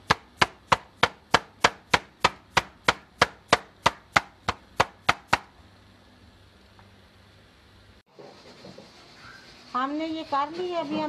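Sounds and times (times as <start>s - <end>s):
meat mallet pounding chicken: 0.0s - 5.5s.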